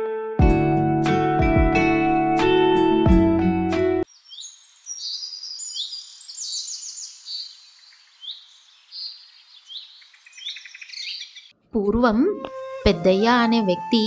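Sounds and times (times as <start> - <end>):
small birds chirping: 4.0 - 11.6.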